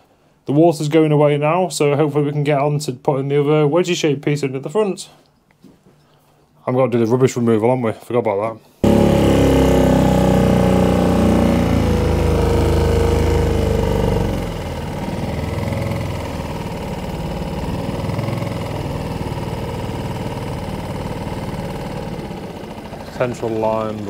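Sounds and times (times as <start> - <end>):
small boat engine running: 8.8 - 24.0.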